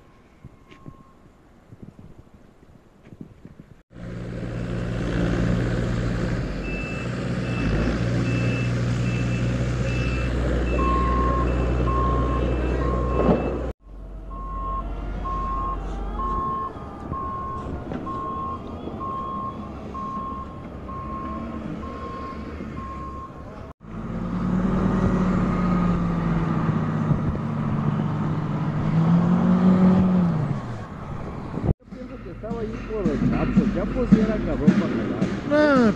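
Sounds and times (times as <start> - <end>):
reversing alarm beeping: 0.0 - 1.2, 6.6 - 13.7, 14.3 - 23.4
diesel engine running: 3.9 - 35.9.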